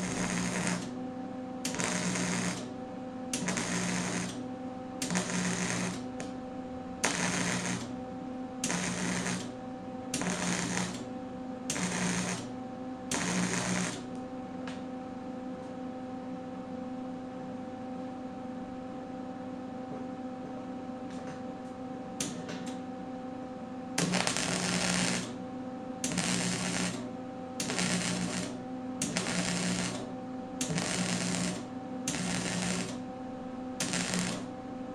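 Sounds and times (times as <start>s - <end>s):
welder crackling: 0.0s - 0.9s, 1.7s - 2.7s, 3.3s - 4.4s, 5.0s - 6.3s, 7.0s - 7.9s, 8.6s - 9.5s, 10.1s - 11.0s, 11.7s - 12.5s, 13.1s - 14.2s, 24.0s - 25.3s, 26.0s - 27.0s, 27.6s - 33.0s, 33.8s - 34.5s
steady low hum: 0.0s - 34.9s.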